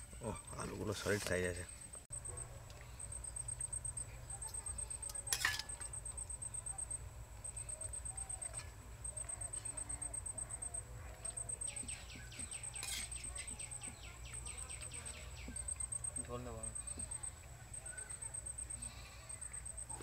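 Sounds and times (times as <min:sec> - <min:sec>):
birds calling: 0:07.5 - 0:20.0.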